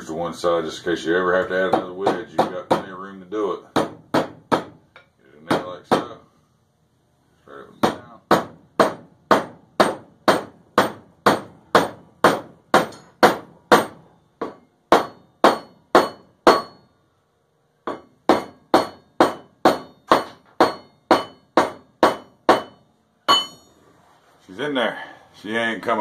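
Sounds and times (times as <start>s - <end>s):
hammer striking with ringing: 7.8s - 16.9s, 17.9s - 23.7s.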